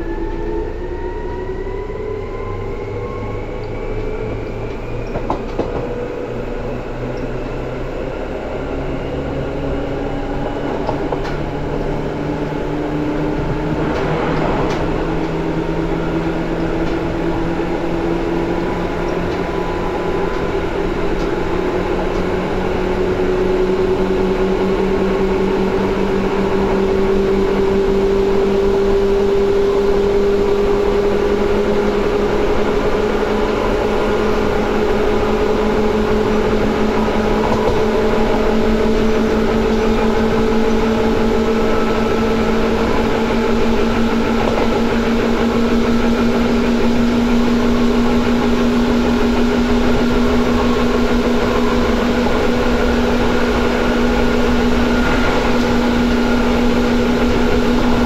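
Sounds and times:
electric train motor hum: 0.0s - 58.0s
train rumbling running noise: 0.0s - 58.0s.

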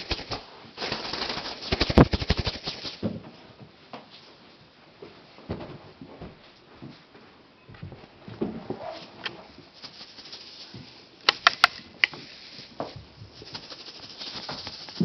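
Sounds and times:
sharp clicks: 11.2s - 12.2s.

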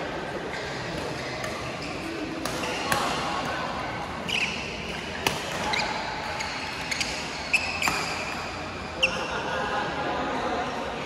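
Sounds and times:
sports hall murmur: 0.0s - 11.0s
shoes squeaking on court floor: 0.5s - 3.1s, 4.2s - 9.3s.

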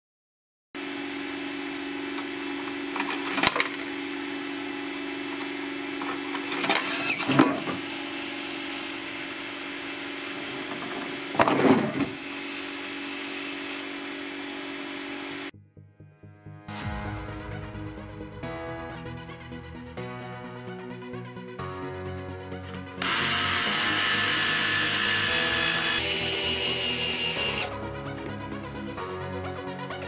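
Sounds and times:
electrical hum: 0.8s - 15.5s.

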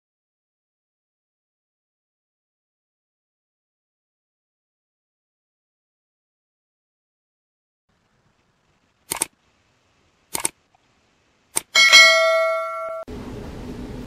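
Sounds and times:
mouse clicks: 9.1s - 9.3s, 10.3s - 10.6s
bell-like notification ding: 11.8s - 13.1s.

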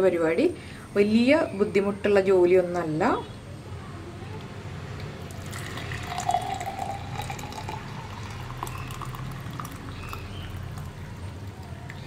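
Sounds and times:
tea pouring into glass mug: 5.2s - 12.0s.

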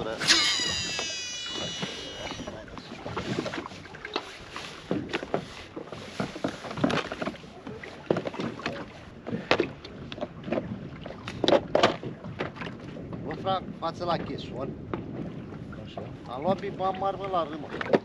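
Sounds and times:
knocks and clunks on boat: 1.5s - 18.0s.

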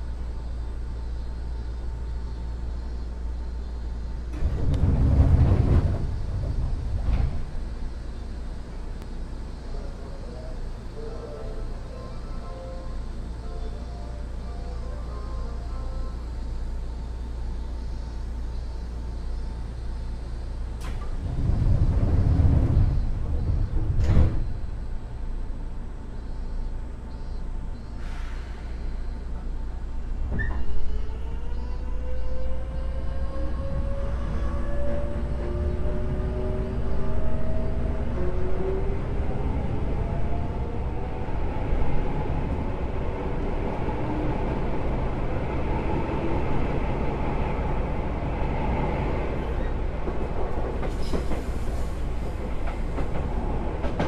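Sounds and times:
train equipment humming: 0.0s - 54.0s
click: 20.8s - 21.2s
hiss of air: 28.0s - 28.9s.

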